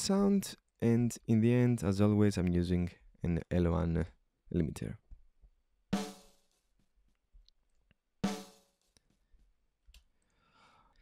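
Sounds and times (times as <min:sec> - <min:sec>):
snare drum hits: 0:06.0 - 0:06.3, 0:08.2 - 0:08.6.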